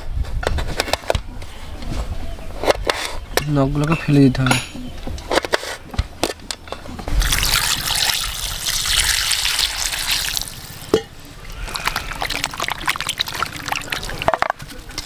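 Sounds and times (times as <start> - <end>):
hot water pouring into metal pot: 7.2 - 14.6
hands splashing in water: 11.6 - 14.4.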